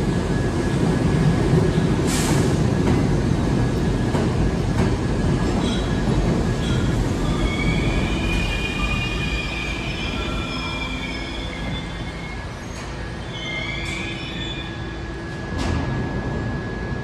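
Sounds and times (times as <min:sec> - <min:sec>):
subway train rumble: 0:00.0 - 0:17.0
wheels squealing on rails: 0:05.6 - 0:15.2.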